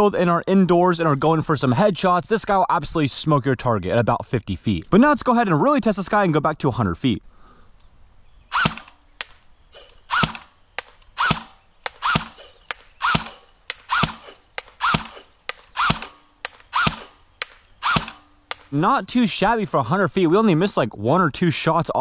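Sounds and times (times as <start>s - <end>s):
faint clicks: 7.8s - 8.0s, 8.6s - 18.8s
electric airsoft gun shots: 8.5s - 18.8s.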